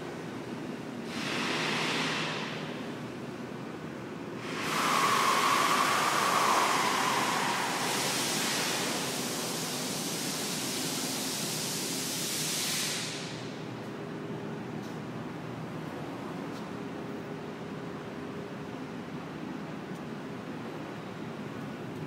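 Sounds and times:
loud steady hiss: 1.0 - 2.9, 4.4 - 13.8.

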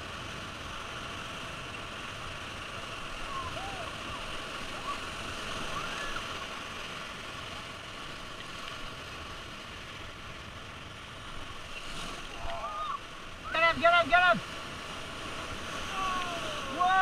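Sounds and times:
whitewater rapids rushing: 0.0 - 17.0.

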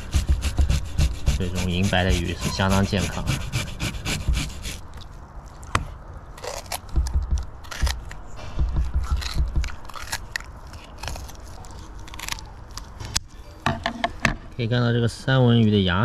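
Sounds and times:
dull knocks: 0.0 - 4.8, 6.8 - 10.2
knife scraping fish: 0.0 - 4.8.

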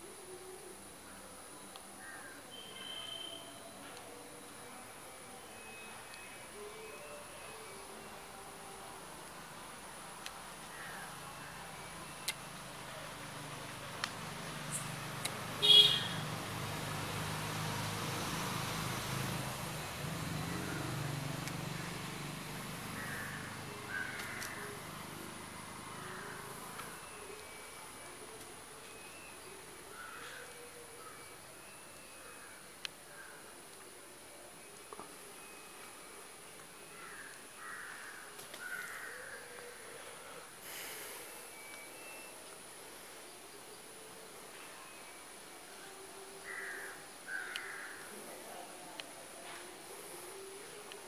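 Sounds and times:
vehicle engine humming: 9.0 - 27.6.

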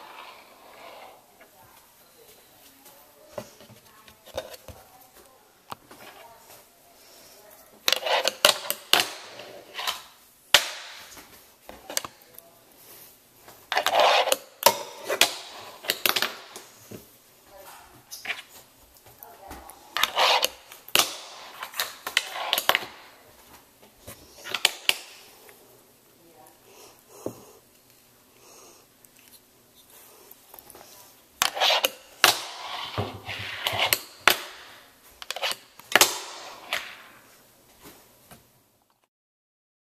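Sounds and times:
fingerboard scraping slides: 0.0 - 1.2, 13.8 - 14.4, 20.0 - 20.7, 31.4 - 34.1
fingerboard scraping: 0.0 - 1.3, 7.9 - 8.6, 9.2 - 10.1, 13.7 - 16.4, 20.0 - 23.0, 31.4 - 34.1.

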